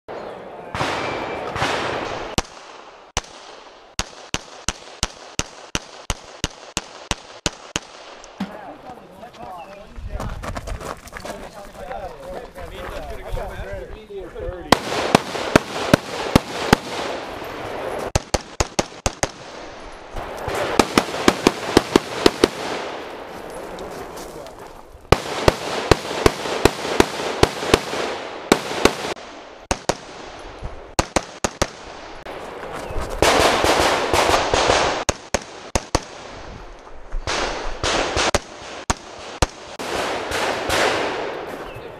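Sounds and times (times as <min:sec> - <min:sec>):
rapid rifle fire: 0:01.6 - 0:08.2, 0:14.7 - 0:17.4, 0:18.1 - 0:19.6, 0:20.4 - 0:23.1, 0:25.2 - 0:30.3, 0:30.9 - 0:31.9, 0:33.2 - 0:36.4, 0:37.3 - 0:41.3.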